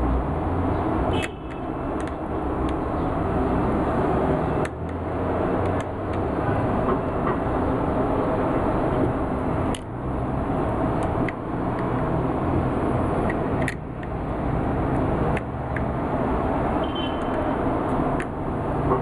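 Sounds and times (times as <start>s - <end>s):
short clicks: 1.2s - 2.8s.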